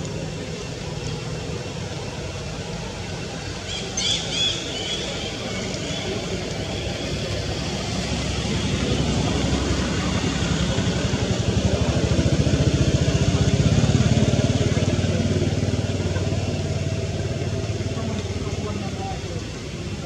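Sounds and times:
vehicle engine running: 0:05.1 - 0:20.0.

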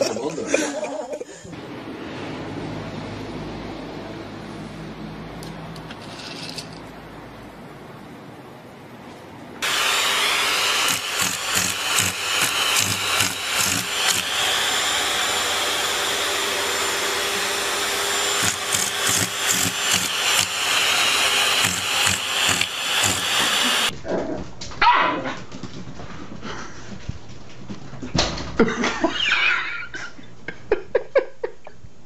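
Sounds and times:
loud motor noise: 0:09.6 - 0:23.9
dog barking: 0:24.8 - 0:25.3.

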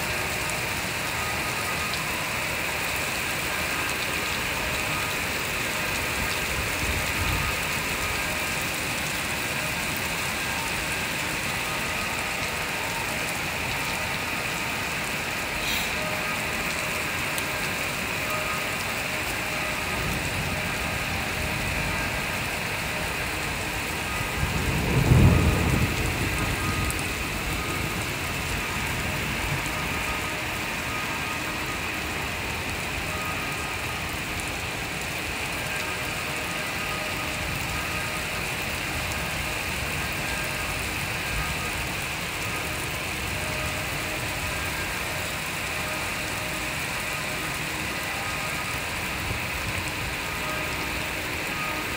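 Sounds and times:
heavy rain: 0:00.0 - 0:51.9
thunder rumble: 0:19.8 - 0:30.8.

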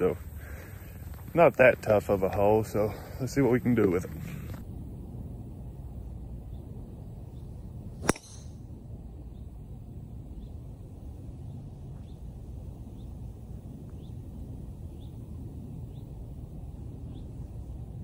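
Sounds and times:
low background rumble: 0:00.0 - 0:18.0
golf club striking ball: 0:08.0 - 0:08.6.

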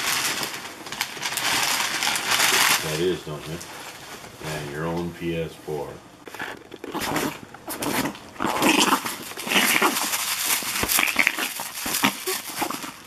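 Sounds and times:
rustling and handling noise: 0:00.0 - 0:13.0
small dog vocalizing: 0:06.8 - 0:10.2, 0:10.8 - 0:13.0.

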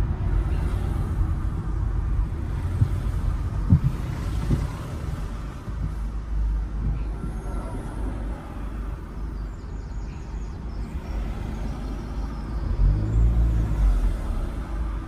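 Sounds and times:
vehicle engine and road rumble: 0:00.0 - 0:15.0.

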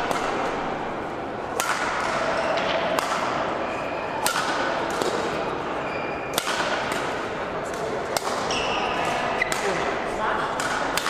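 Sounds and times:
shuttlecock hits: 0:00.0 - 0:00.8, 0:01.5 - 0:03.5, 0:04.2 - 0:05.4, 0:06.3 - 0:09.9, 0:10.5 - 0:11.0.

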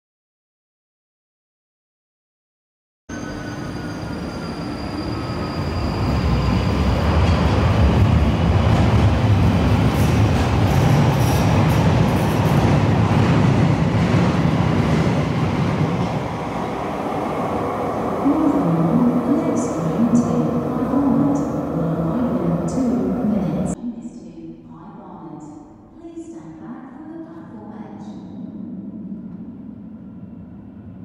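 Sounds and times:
underground train pulling out: 0:03.1 - 0:23.8.

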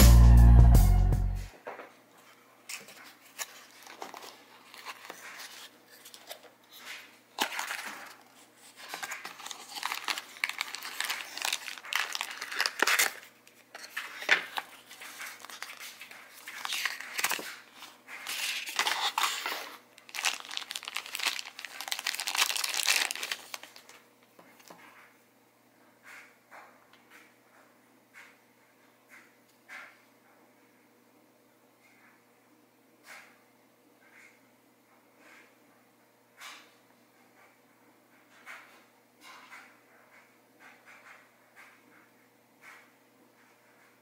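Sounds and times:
plastic bag crinkling: 0:03.2 - 0:24.0.

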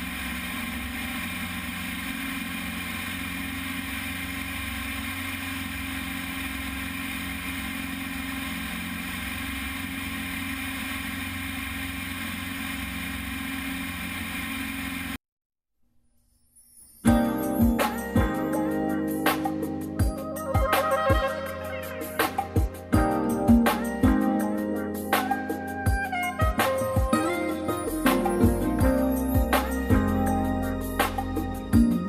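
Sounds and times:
light aircraft engine drone: 0:00.0 - 0:15.2.

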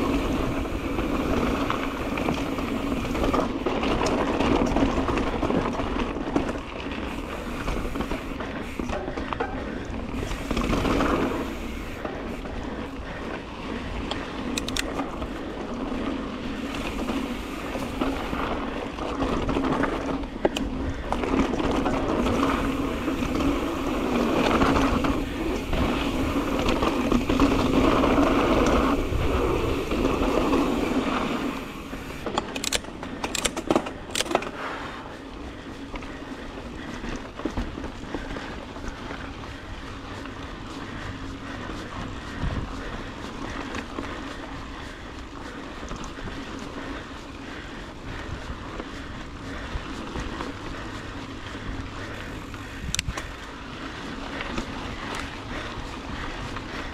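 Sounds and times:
bike rattling: 0:00.0 - 0:56.9
bike tyres on dirt: 0:00.0 - 0:56.9
sharp clicks: 0:14.0 - 0:15.1, 0:32.2 - 0:34.5.

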